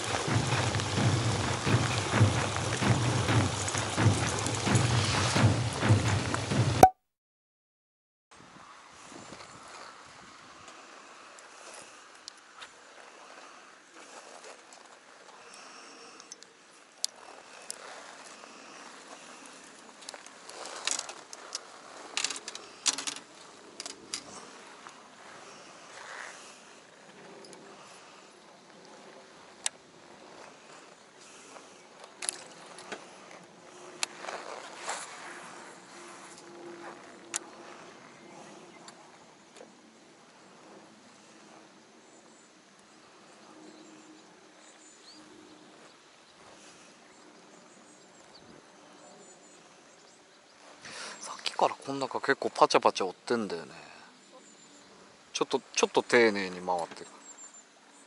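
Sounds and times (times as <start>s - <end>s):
fishing rods and reels clattering: 0.0s - 6.9s, 17.0s - 25.0s, 29.0s - 37.9s.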